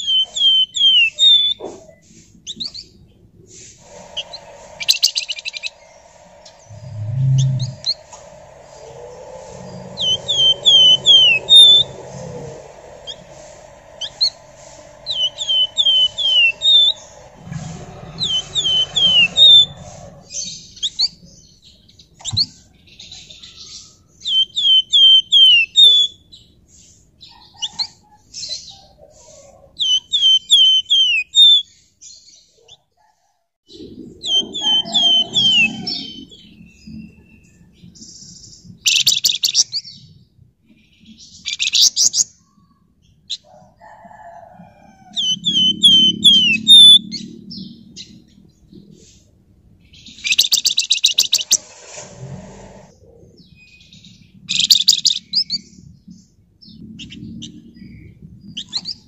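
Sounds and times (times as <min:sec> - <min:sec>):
songbird chirping: 0:00.0 - 0:31.3, 0:45.0 - 0:48.9, 0:49.9 - 0:51.6.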